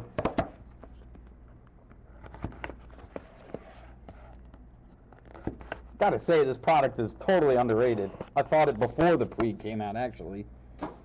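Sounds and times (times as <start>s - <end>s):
steady low hum: 0.0s - 11.0s
trading cards clicking and rustling: 7.6s - 9.6s.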